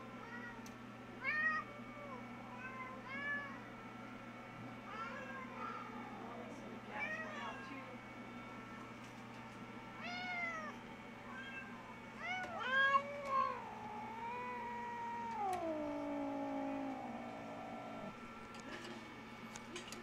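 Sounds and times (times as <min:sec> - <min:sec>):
cat meowing: 0:10.0 - 0:18.2.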